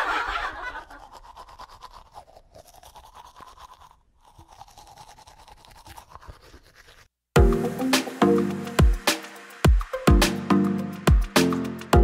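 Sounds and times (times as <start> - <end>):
toothbrush scrubbing teeth: 0.5 - 7.2.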